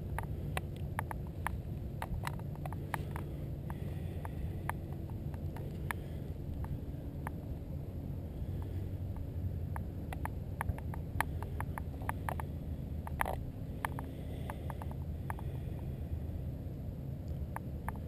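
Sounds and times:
small clicks and ticks: 0.0s - 7.5s, 8.6s - 16.0s, 17.2s - 18.0s
wind rumble on microphone: 0.0s - 18.0s.

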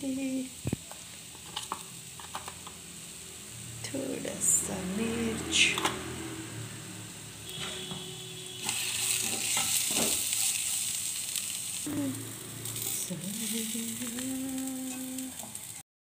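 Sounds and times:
vegetables sizzling in a pan: 0.0s - 15.8s
utensil clinking and scraping pan: 8.6s - 10.9s.

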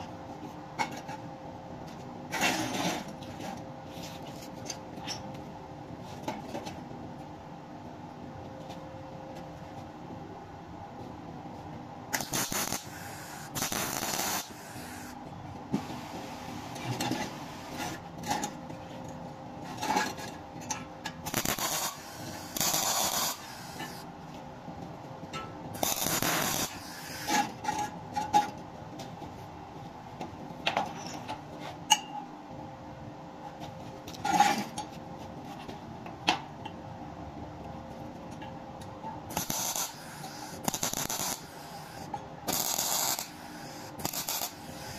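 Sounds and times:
steady hum: 5.3s - 30.6s, 35.1s - 44.9s
welding arc crackling: 12.1s - 15.2s, 21.3s - 24.0s, 25.8s - 27.4s, 39.3s - 44.9s.

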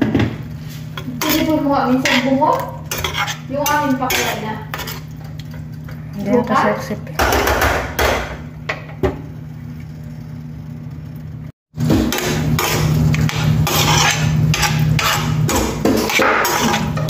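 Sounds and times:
metal spatula scraping ceramic plate: 0.7s - 6.3s, 12.1s - 17.0s.

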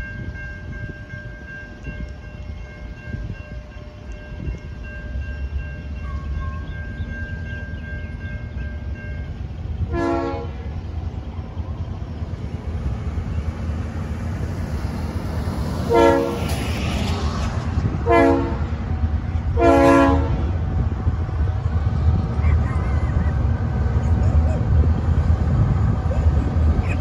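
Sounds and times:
diesel engine rumbling: 3.8s - 27.0s
train horn blasts: 9.9s - 10.7s, 15.7s - 16.6s, 18.0s - 18.9s, 19.5s - 20.6s.

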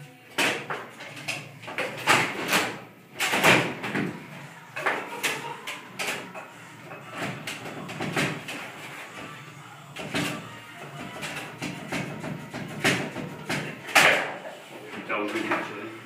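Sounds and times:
table football ball and rods clacking: 10.0s - 14.5s.

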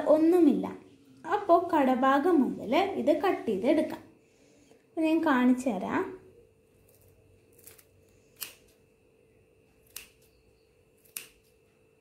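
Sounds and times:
scissors snipping stems: 6.9s - 8.8s, 9.8s - 10.4s, 11.0s - 11.5s.

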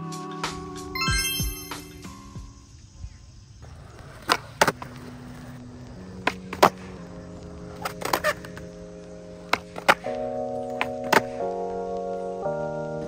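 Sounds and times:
background music of held chords: 0.0s - 2.6s, 6.8s - 13.0s
skateboard clacking on concrete: 3.7s - 7.0s, 7.6s - 8.8s, 9.4s - 11.6s.

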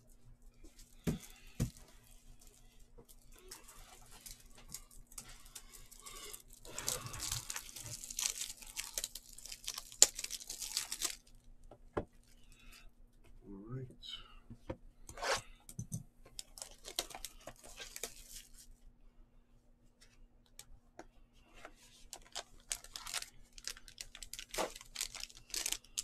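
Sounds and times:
plastic wrapping tearing and crinkling: 1.0s - 11.4s, 16.4s - 18.7s, 22.1s - 26.0s.

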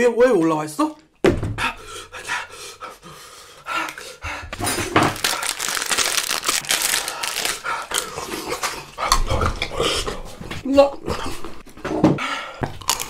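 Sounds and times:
man panting hard: 1.6s - 5.6s.

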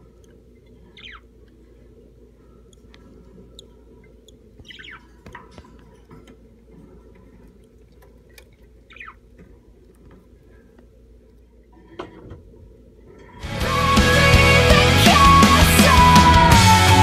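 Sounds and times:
faint ticks: 0.0s - 11.5s
budgerigars chirping: 1.0s - 1.3s, 4.6s - 5.1s, 8.9s - 9.2s.

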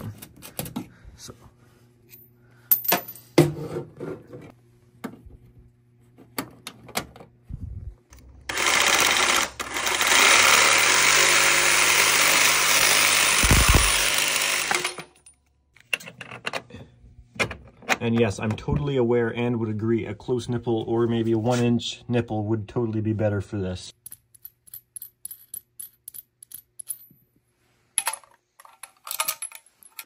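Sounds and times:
power saw cutting steel: 8.5s - 15.1s.

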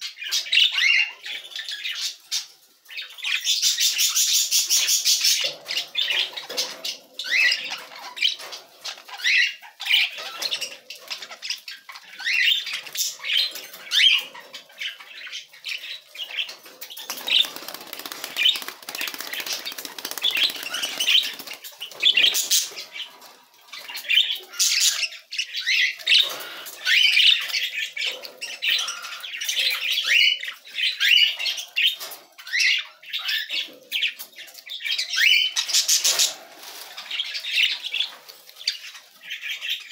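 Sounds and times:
budgerigars chirping: 0.0s - 39.9s
wings fluttering: 16.6s - 23.3s.

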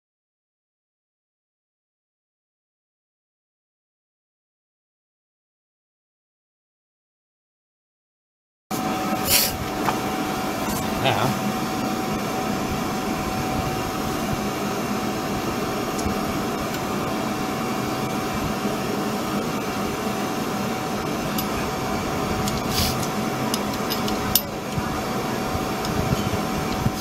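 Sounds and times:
fan hum: 8.7s - 27.0s.

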